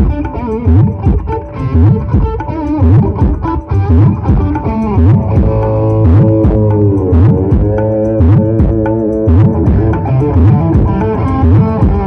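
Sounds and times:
loud music through speakers: 0.0s - 12.0s
deep bass notes swooping: 2.9s - 12.0s.

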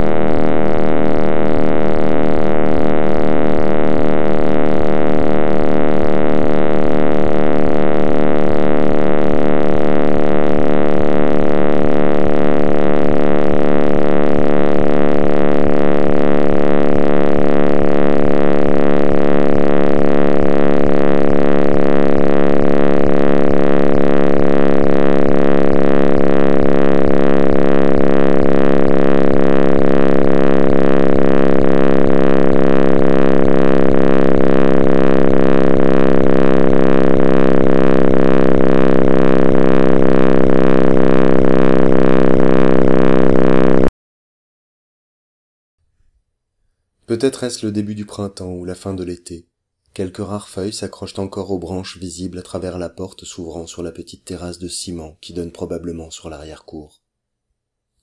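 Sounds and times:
dense electronic drone: 0.0s - 43.9s
low regular pulsing: 0.0s - 43.9s.

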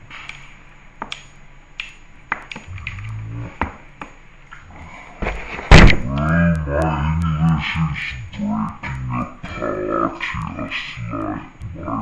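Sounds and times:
low voice humming: 2.6s - 3.6s, 4.6s - 12.0s.

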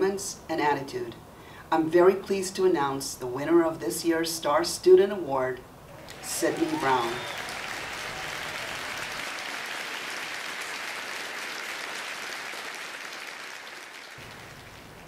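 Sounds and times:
hands clapping: 6.0s - 15.0s.

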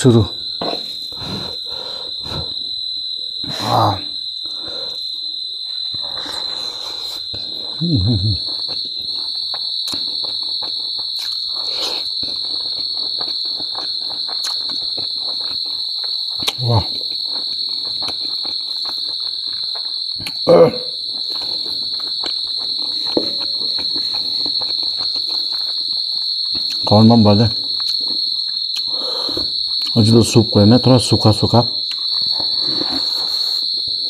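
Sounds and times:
high-pitched insect trill: 0.0s - 34.0s
person chewing wetly: 8.4s - 20.4s, 21.0s - 26.9s, 27.6s - 30.0s, 31.8s - 34.0s.

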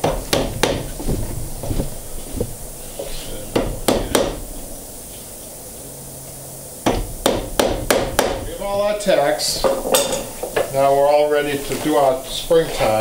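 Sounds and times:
tack hammer tapping into wood: 0.0s - 0.9s, 3.5s - 4.4s, 6.8s - 8.4s.

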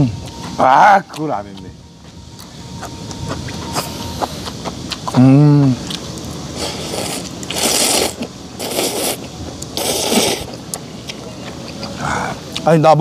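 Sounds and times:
man slurping noodles: 6.6s - 9.2s, 9.8s - 10.5s.

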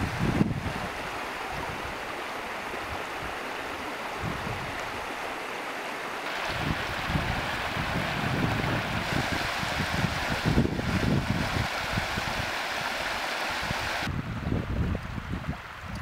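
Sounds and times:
wind rumble on microphone: 0.0s - 2.0s, 4.2s - 5.1s, 6.5s - 12.5s, 13.6s - 16.0s
floodwater rushing: 0.0s - 14.1s.

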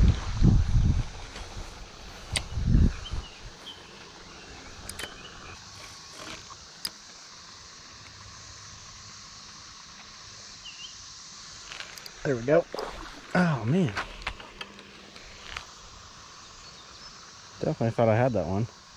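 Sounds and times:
sharp clicks: 4.8s - 5.3s.

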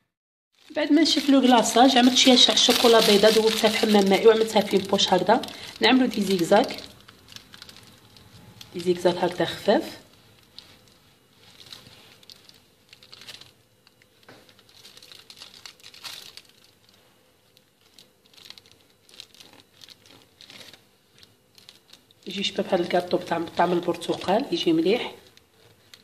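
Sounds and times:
plastic piping bag crinkling: 0.6s - 26.0s.

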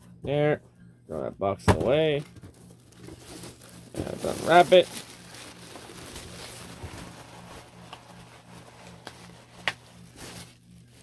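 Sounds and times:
wrapping rustling: 2.5s - 11.0s.

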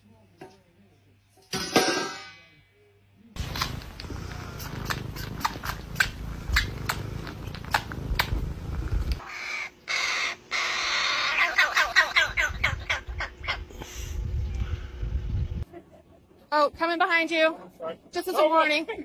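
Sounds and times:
sharp clicks: 3.4s - 8.4s
low rumble: 3.4s - 9.2s, 12.5s - 15.6s
crow chick raspy begging calls: 9.2s - 13.7s.

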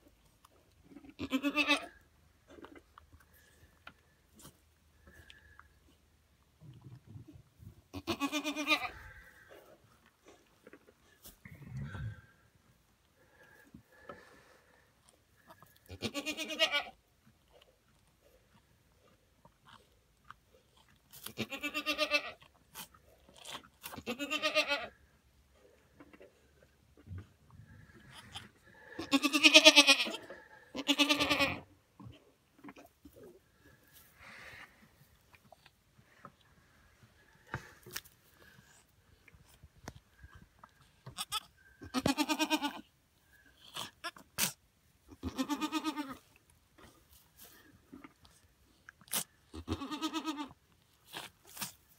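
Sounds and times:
goat bleating: 1.0s - 2.0s, 7.9s - 9.1s, 15.9s - 17.0s, 21.1s - 22.4s, 23.8s - 25.0s, 28.3s - 31.7s, 41.1s - 42.9s, 45.1s - 46.3s, 49.5s - 50.6s.

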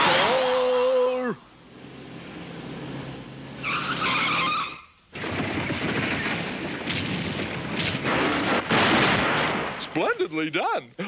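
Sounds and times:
cartoon skidding screech: 0.0s - 1.2s, 3.6s - 5.0s.

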